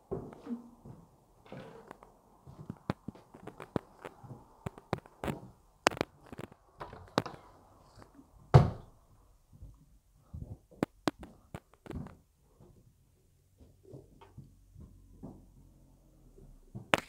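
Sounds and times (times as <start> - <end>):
footsteps on bare floor: 0.0 - 5.6, 13.6 - 15.6.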